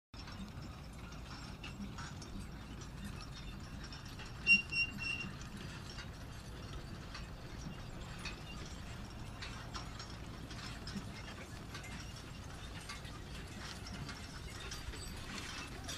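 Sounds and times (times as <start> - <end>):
manure spreader rumbling: 0.3 - 15.9
short high-pitched squeaks: 4.2 - 5.9.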